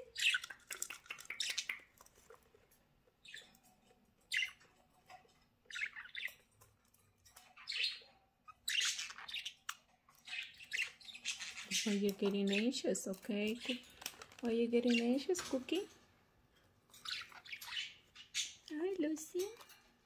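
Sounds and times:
budgerigars chirping and squawking: 0.0 - 16.0, 16.7 - 19.6.

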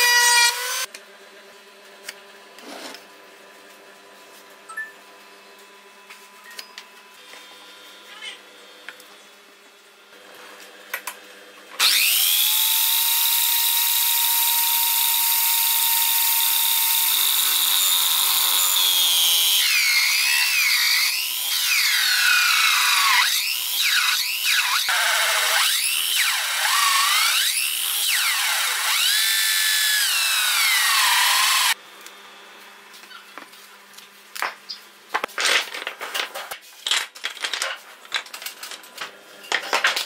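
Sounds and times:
hole saw cutting wood: 0.0 - 0.9, 11.8 - 31.8
electric drill whining: 11.8 - 31.8.

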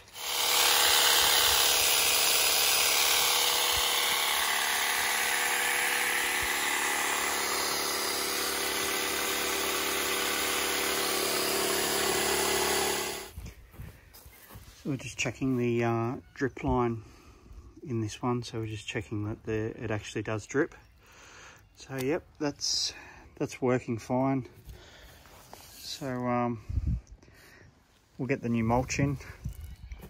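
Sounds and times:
pole hedge trimmer running: 0.0 - 13.4.

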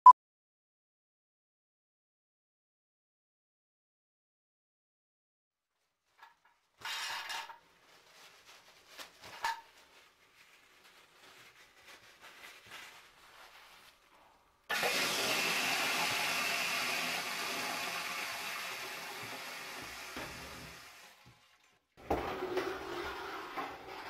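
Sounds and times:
toilet flushing: 14.7 - 24.0.

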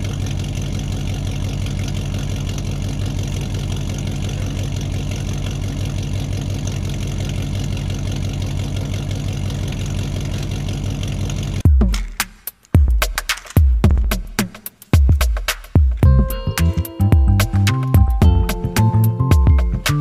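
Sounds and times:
engine idling: 0.0 - 11.6, 16.0 - 20.0.

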